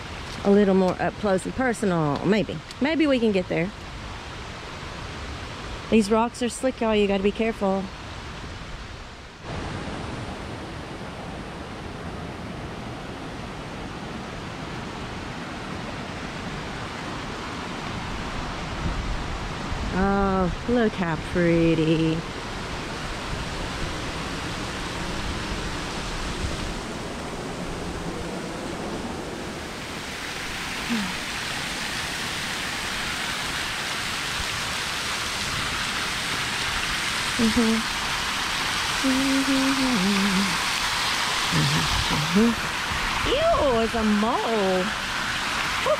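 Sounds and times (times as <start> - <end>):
river water rushing over rocks: 22.2 - 45.9.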